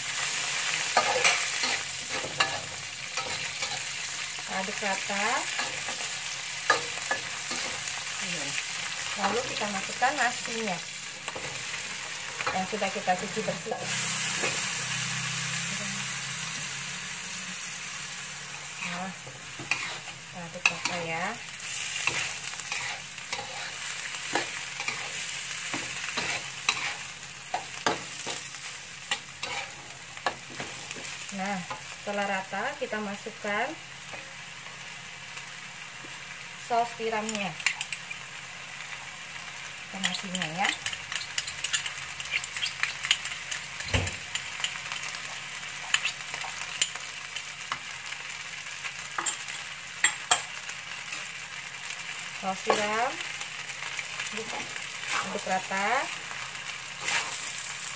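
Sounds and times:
rice sizzling in a wok: 0.0s - 57.9s
metal spatula scraping a wok: 0.1s - 8.0s, 18.6s - 31.8s, 54.4s - 55.8s, 57.0s - 57.7s.

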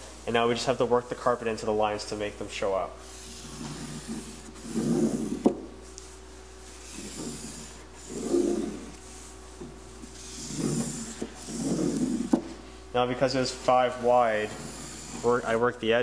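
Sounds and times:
plastic tool scraping carpet: 3.2s - 5.6s, 6.8s - 9.0s, 10.1s - 12.5s.

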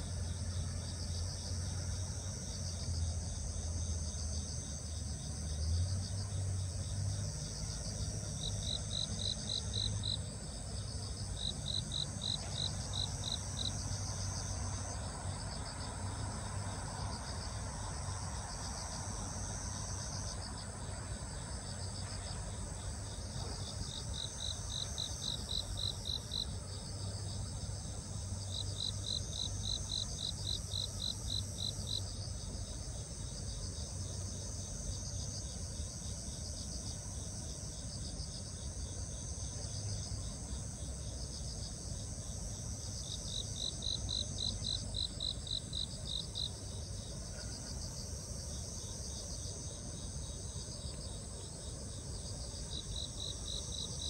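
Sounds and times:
insect pulsed chirp: 41.0s - 54.0s.

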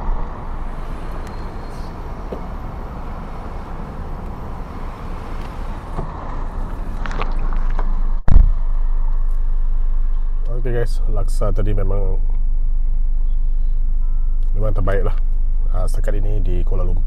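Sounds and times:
street traffic noise: 0.0s - 16.5s
low hum inside car: 0.0s - 17.0s
loud thump: 2.2s - 2.6s, 8.2s - 8.6s.

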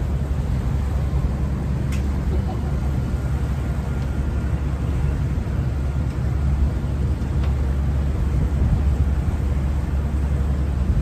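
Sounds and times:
boat engine drone: 0.0s - 11.0s
wind buffeting microphone: 0.0s - 11.0s.

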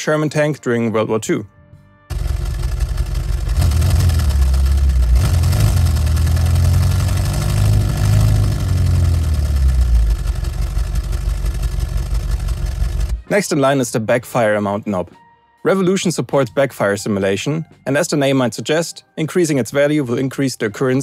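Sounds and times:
synthesized tank engine revving: 2.1s - 13.2s.

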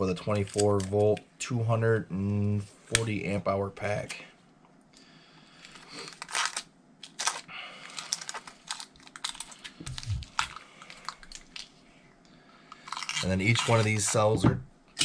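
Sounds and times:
thin film crinkling: 0.2s - 1.2s, 5.6s - 11.8s, 12.7s - 14.3s.

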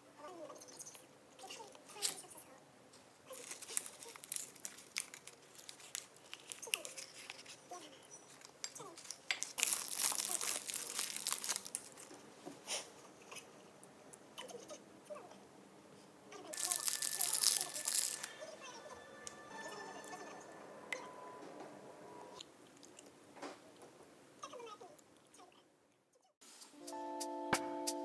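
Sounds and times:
light chewing: 3.0s - 13.4s, 22.6s - 23.2s
wrapper crinkling: 3.2s - 12.2s, 16.5s - 19.4s.

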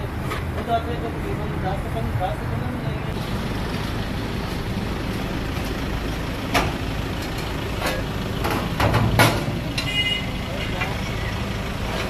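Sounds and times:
busy street stall background noise: 0.0s - 12.0s.

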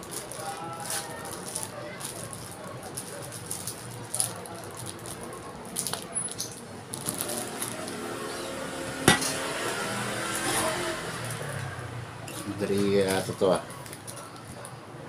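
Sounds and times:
plastic wrap crinkling: 0.0s - 8.1s, 12.4s - 14.7s.

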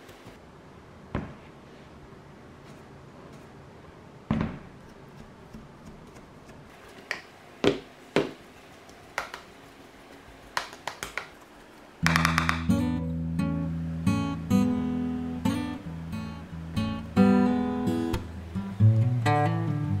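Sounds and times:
acoustic guitar music: 12.0s - 20.0s.

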